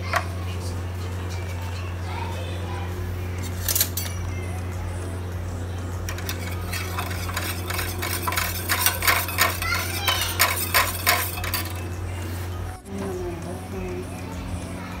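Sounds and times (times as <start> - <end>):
steady low hum: 0.0 - 15.0
metal spoon stirring in bowl: 6.1 - 12.0.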